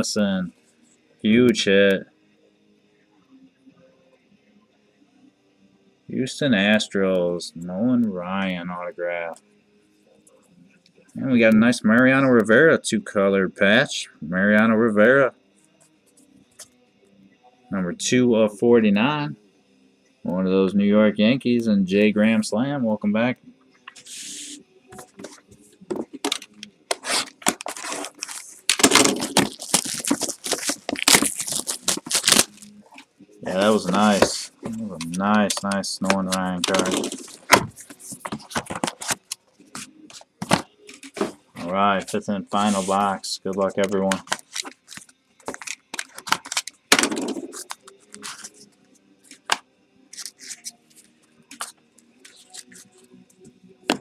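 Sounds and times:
wrapping tearing and crinkling: 26.3 - 32.8, 36.3 - 39.9, 44.1 - 46.8, 47.5 - 48.7, 50.2 - 50.8.

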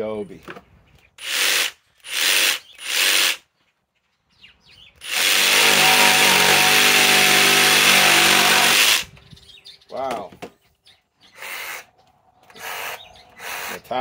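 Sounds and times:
jigsaw cutting wood: 1.2 - 3.4, 5.0 - 9.1, 12.5 - 13.8.

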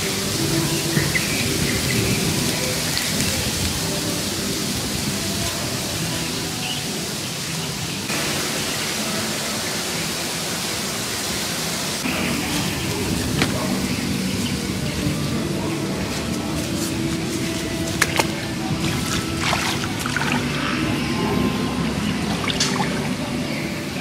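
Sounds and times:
wind buffeting microphone: 0.0 - 8.1
wind-blown grass and trees rustling: 0.0 - 24.0.

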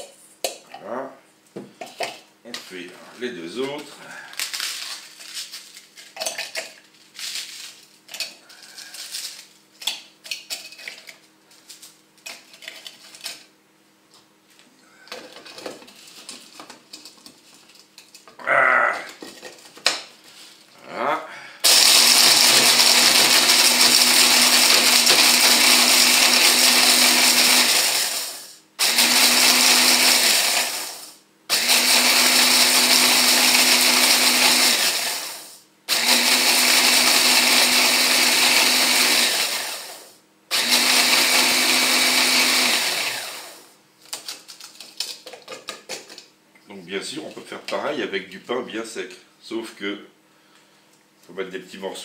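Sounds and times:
hand blender grinding bread: 21.6 - 43.7.

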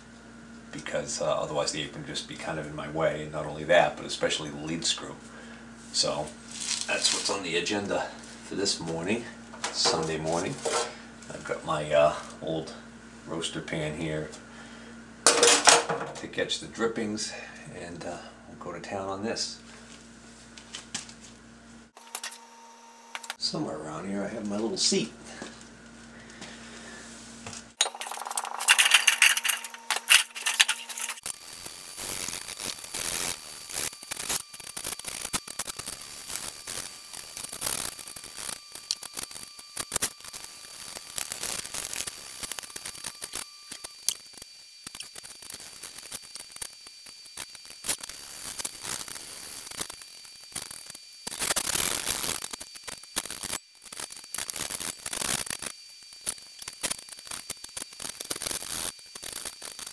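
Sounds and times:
scrubbing and scraping metal: 28.0 - 31.2.

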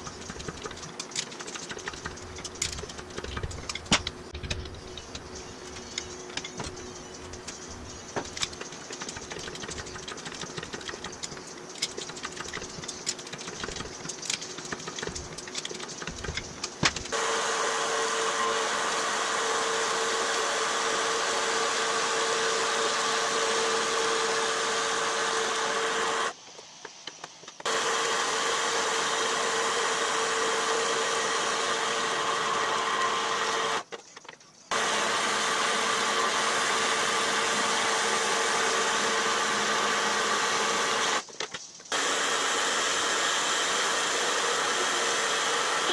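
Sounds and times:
bandsaw cutting steel tube: 17.1 - 26.4, 27.7 - 33.8, 41.9 - 45.9.

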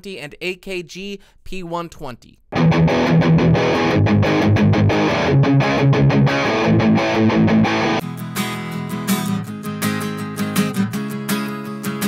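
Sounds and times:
distorted electric guitar riff: 2.5 - 10.9
acoustic guitar strumming: 2.6 - 12.0.

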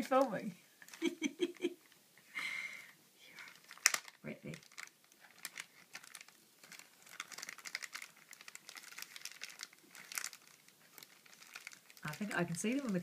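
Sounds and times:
plastic bag crinkling: 0.0 - 1.7, 3.3 - 13.0.

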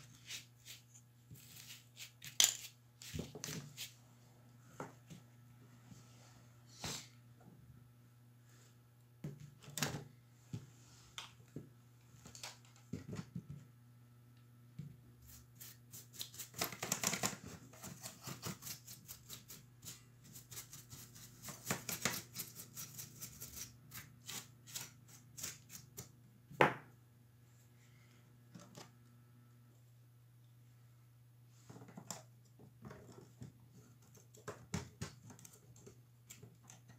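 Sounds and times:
low steady hum: 22.6 - 36.9.

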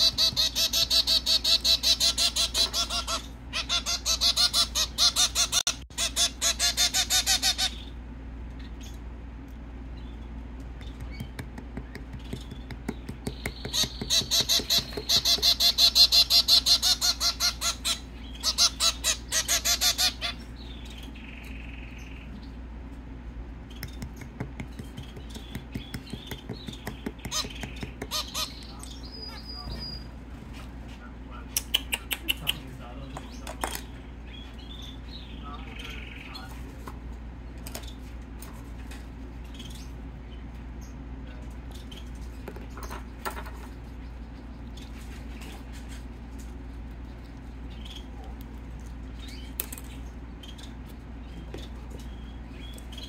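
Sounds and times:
finch calling rapidly: 0.0 - 8.0, 12.1 - 22.2, 23.7 - 30.1
faint bird chirps: 46.6 - 48.4.

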